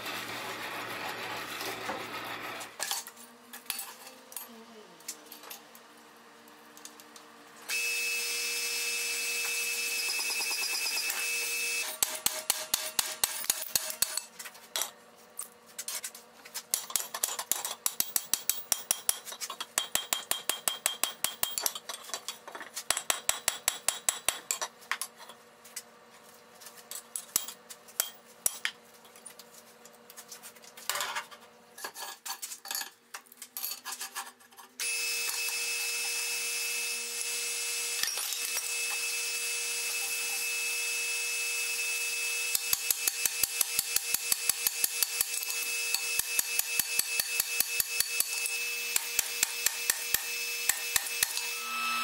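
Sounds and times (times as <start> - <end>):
power hammer running: 7.7 - 12.5, 34.8 - 52.0.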